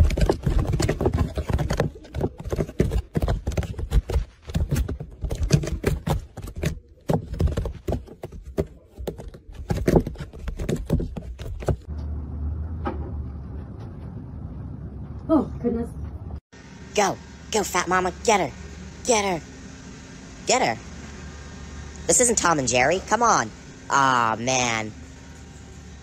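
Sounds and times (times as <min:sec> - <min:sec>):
cat scrambling in cubby: 0:00.0 - 0:11.9
low steady hum: 0:11.8 - 0:26.0.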